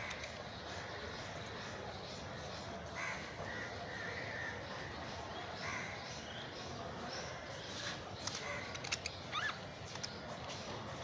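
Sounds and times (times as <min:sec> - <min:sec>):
sharp clicks: 0:08.2 - 0:10.2.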